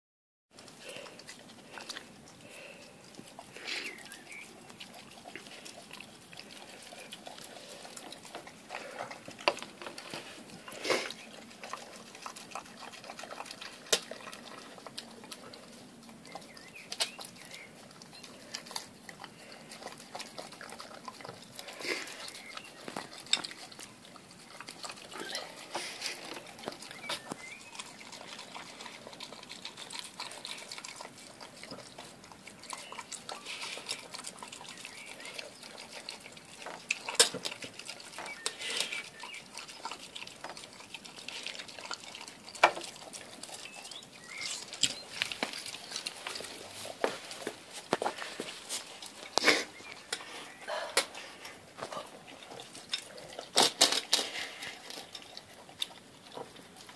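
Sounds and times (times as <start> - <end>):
dog chewing wet food: 0.5 - 56.9.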